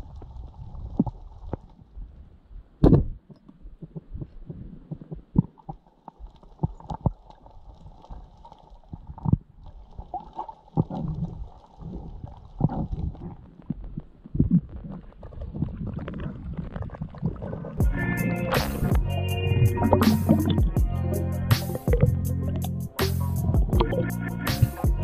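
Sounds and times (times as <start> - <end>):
faint crackling: 0.0 - 20.8
bubbly gurgling: 4.9 - 17.8, 23.5 - 24.8
low underwater thumps and knocks: 19.8 - 21.0, 21.6 - 22.7, 23.4 - 24.1.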